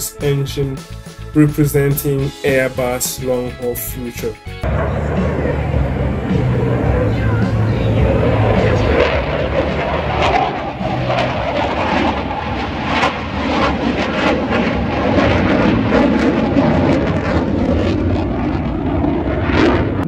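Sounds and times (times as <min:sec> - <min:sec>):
fighter jet roar: 0:04.6 - 0:20.0.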